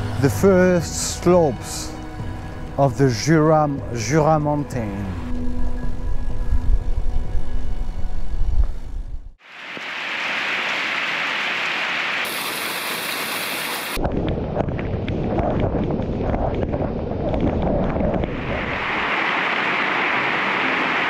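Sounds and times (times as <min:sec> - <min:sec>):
river rushing: 0:09.4 - 0:14.0, 0:18.4 - 0:21.0
heavy rain: 0:09.4 - 0:14.1, 0:17.9 - 0:21.0.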